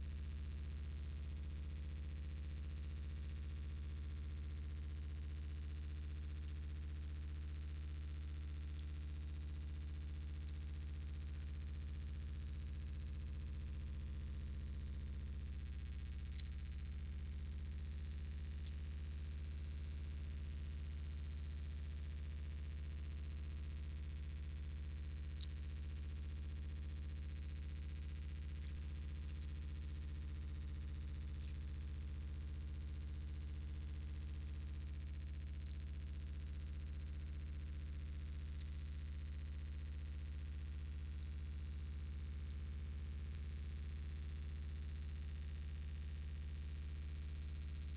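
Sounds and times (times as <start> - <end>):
steady low hum: 0.0 - 47.9
faint sharp clicks: 16.2 - 16.8, 28.4 - 29.6, 35.4 - 35.9.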